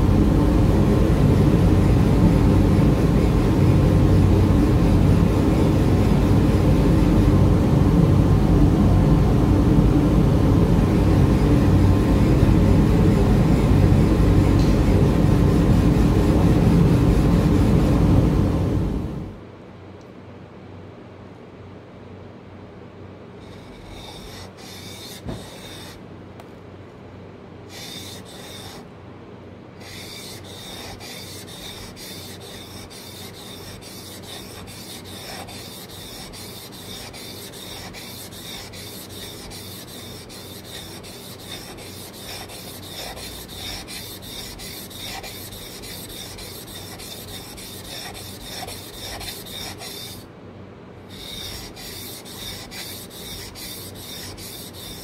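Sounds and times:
chisel scraping on whetstone: 23.4s - 26.0s, 27.7s - 28.8s, 29.8s - 50.2s, 51.1s - 55.0s.

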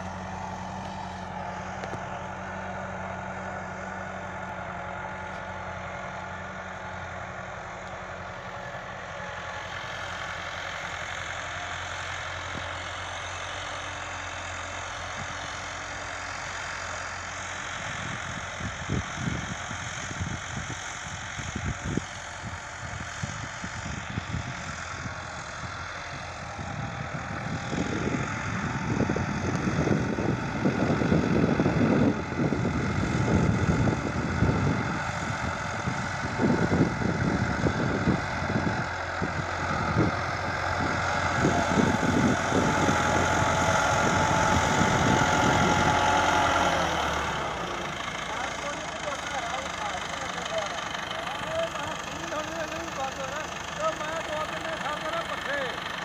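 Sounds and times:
tractor engine running: 0.0s - 56.0s
irregular low rumbling: 35.4s - 53.9s.

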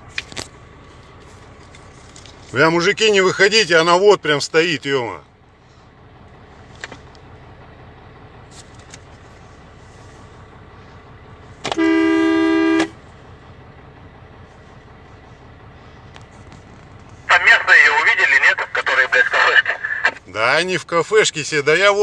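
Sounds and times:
two-note vehicle horn blast: 11.7s - 13.0s.

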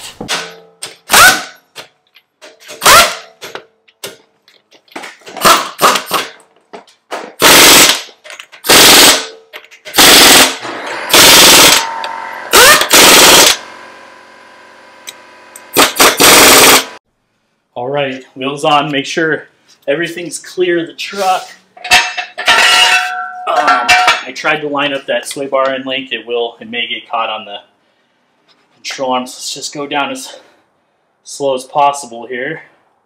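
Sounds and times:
pneumatic impact wrench rattling: 0.3s - 1.6s, 2.5s - 3.6s, 5.3s - 6.4s, 7.4s - 13.7s, 15.0s - 17.0s.

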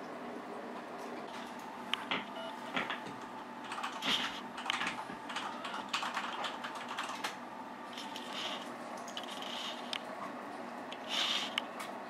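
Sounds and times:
rat clicking and crunching: 3.6s - 10.0s.

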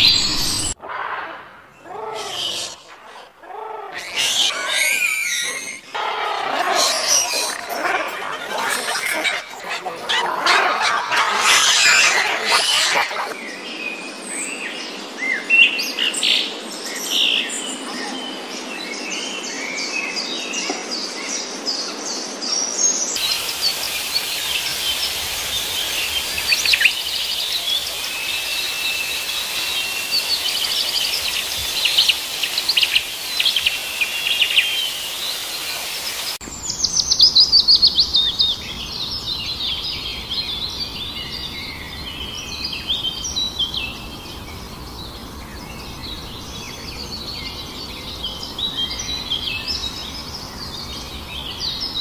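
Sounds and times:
birds chirping and singing: 0.0s - 0.8s, 4.0s - 13.7s, 22.9s - 52.0s
rapid run of bird chirps: 0.0s - 0.8s, 23.2s - 49.9s.

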